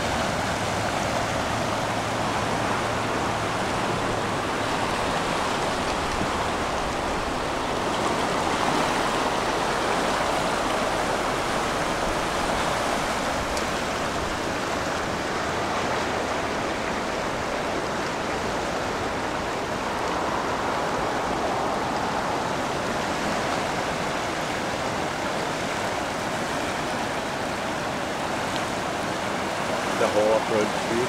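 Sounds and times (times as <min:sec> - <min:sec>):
river rushing: 0:00.0 - 0:31.0.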